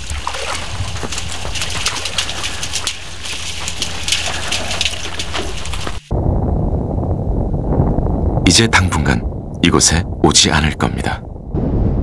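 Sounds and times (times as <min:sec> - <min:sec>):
camels slurping and splashing water: 0:00.0 - 0:06.1.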